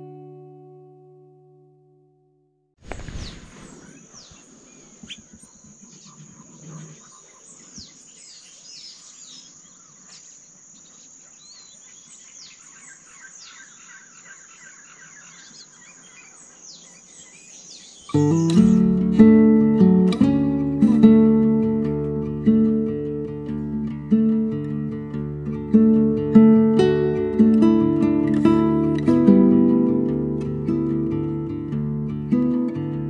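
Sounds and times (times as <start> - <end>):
birds chirping and calling: 2.9 - 19.0.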